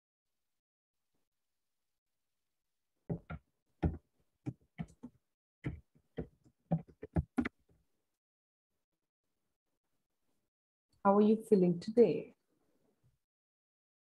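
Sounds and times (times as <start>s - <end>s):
keyboard typing: 4.8s - 7.5s.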